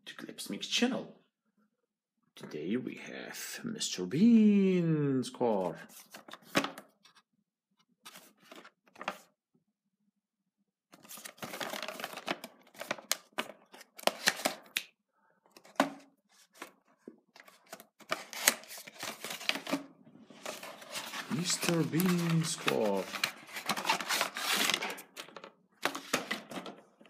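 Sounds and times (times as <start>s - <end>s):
box clicks scrapes and rustles: 17.4s - 26.7s.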